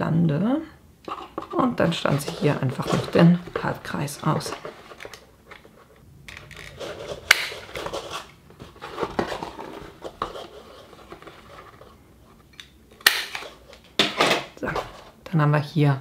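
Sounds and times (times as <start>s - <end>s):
paper rustling: 1.3s - 12.4s.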